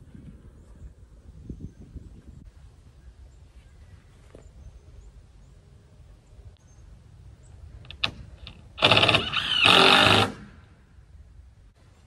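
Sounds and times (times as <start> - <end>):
drill driving screws into wood: 8.0 - 10.6.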